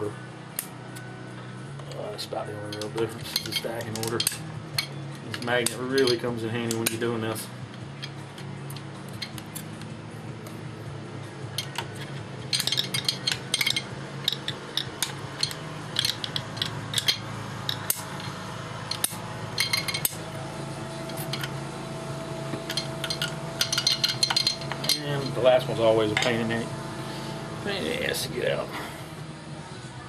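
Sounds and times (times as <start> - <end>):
light metallic clicks and scraping: 1.7 - 10.6, 11.5 - 20.3, 21.0 - 21.6, 22.5 - 26.6.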